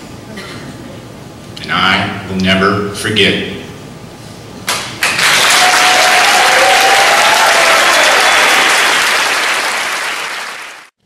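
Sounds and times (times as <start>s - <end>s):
audience applauding: 4.7s - 11.0s.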